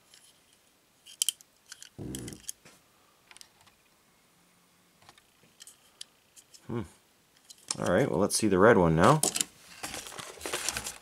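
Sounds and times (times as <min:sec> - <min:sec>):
toy car and packaging clicks: 0:00.1 - 0:02.6.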